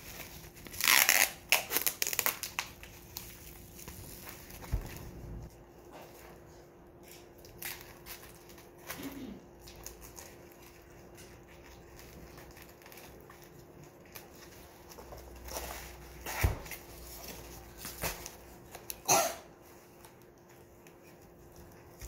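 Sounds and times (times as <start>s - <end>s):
bubble wrap crinkling: 0.0s - 22.0s.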